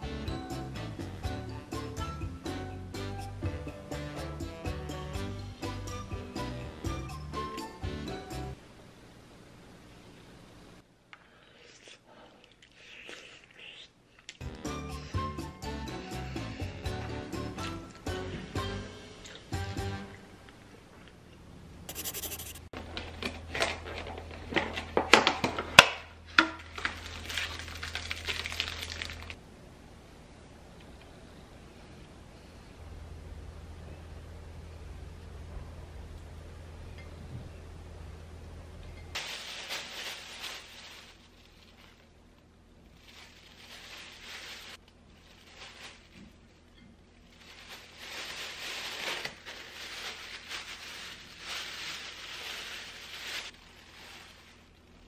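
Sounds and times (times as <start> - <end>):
plastic packaging crinkling: 26.6 - 29.4, 39.2 - 42.2, 42.8 - 55.0.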